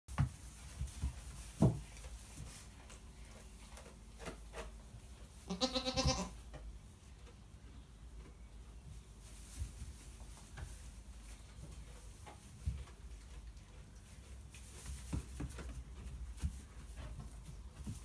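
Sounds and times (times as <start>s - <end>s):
thumps and rustles in hay: 0.1s - 4.6s, 8.9s - 13.4s, 14.0s - 18.0s
goat bleating: 5.4s - 6.4s.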